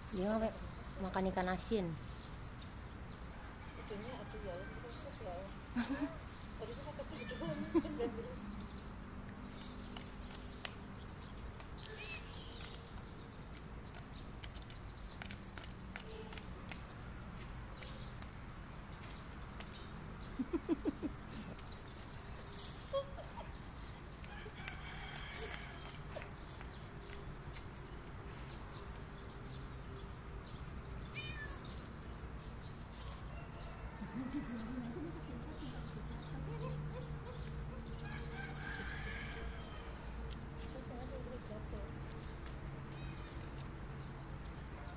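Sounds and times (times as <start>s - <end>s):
sandals tapping on asphalt: 9.2s - 20.2s, 24.0s - 33.0s, 39.5s - 44.8s
cat meowing: 31.2s - 31.7s.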